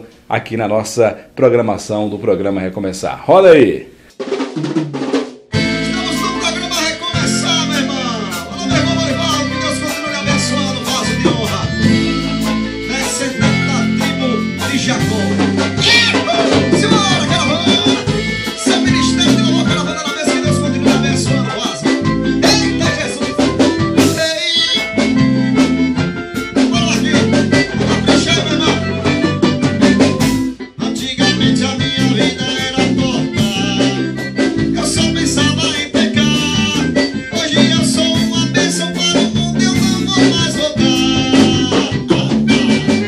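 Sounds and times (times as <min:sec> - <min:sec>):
drum kit: 0:04.0 - 0:43.0
congas: 0:04.1 - 0:43.0
accordion: 0:05.5 - 0:43.0
electric bass: 0:05.5 - 0:43.0
man singing: 0:05.6 - 0:43.0.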